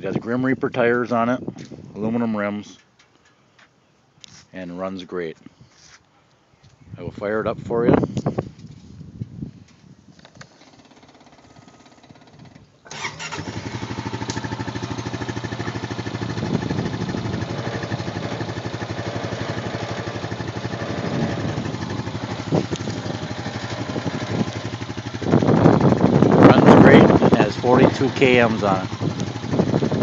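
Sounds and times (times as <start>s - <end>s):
engine electric start: 10.5s - 15.1s
engine idling: 10.6s - 30.0s.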